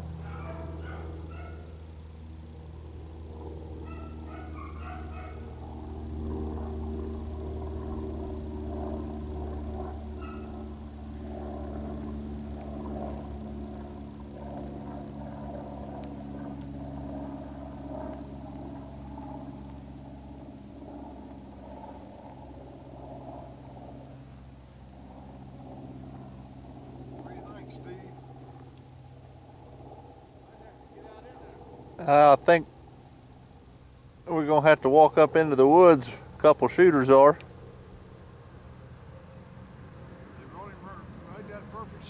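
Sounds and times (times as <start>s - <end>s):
distant dogs baying: 0.0s - 1.9s, 3.7s - 6.1s, 9.9s - 11.0s
low engine-like hum: 0.0s - 42.0s.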